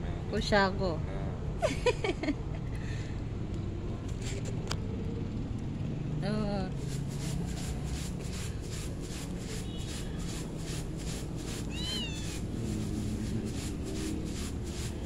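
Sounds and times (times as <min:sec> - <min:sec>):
dry rhythmic rustle in colander: 0:06.7 - 0:15.0
cat meowing: 0:11.6 - 0:12.4.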